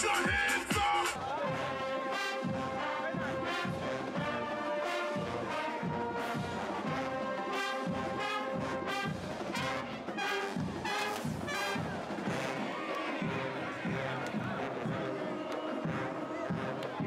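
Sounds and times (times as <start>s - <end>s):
steady drum beat: 0.0s - 1.8s
brass band playing: 0.0s - 17.0s.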